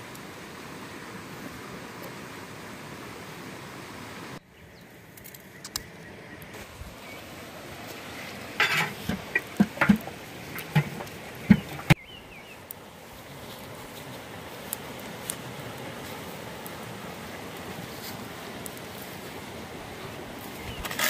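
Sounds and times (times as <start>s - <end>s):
stream flowing: 0.0s - 21.0s
plates clattering into metal pot: 8.6s - 12.0s.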